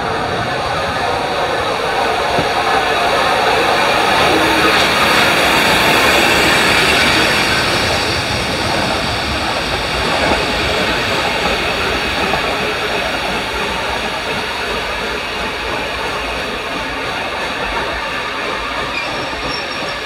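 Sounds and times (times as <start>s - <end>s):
steam locomotive hiss and rumble: 0.0s - 20.0s.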